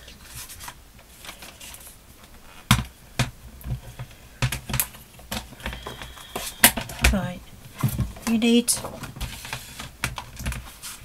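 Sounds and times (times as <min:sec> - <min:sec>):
paper moving: 0:08.8 - 0:11.0.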